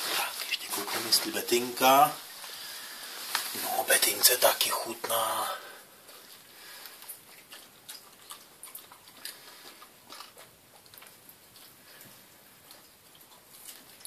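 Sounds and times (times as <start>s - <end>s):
dog chewing and smacking jaws: 6.0s - 14.0s.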